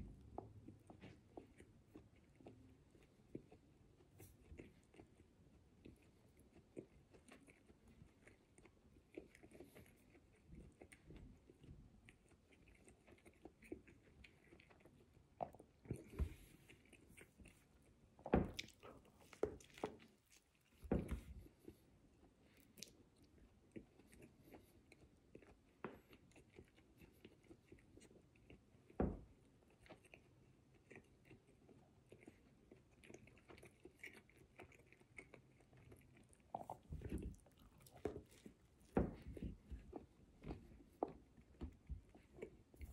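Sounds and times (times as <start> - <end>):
person chewing: 0.1 - 42.9
biting into sandwich: 29.7 - 42.9.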